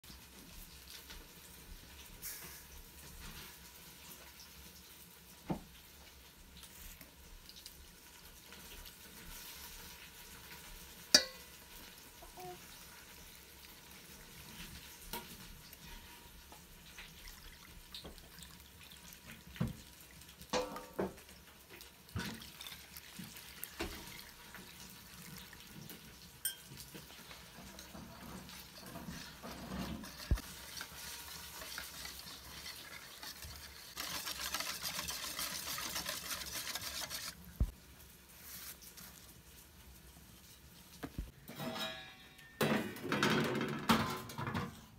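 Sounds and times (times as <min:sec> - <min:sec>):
wire whisk stirring batter: 0:10.6 - 0:13.2, 0:21.8 - 0:37.8
utensils knocking against steel bowl: 0:11.2 - 0:11.4, 0:20.6 - 0:21.1.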